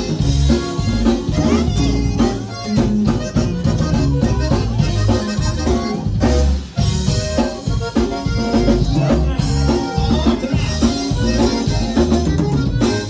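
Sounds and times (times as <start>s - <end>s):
accordion melody: 0.0s - 13.0s
band playing dance music: 0.0s - 13.0s
bass: 0.0s - 13.0s
drum kit beat: 0.0s - 13.0s.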